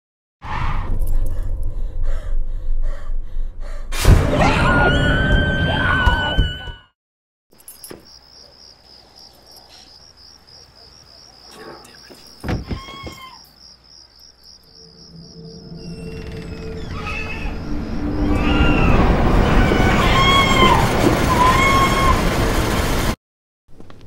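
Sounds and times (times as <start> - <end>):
crickets chirping: 7.5 - 18.4
horror soundtrack music: 14.8 - 22.4.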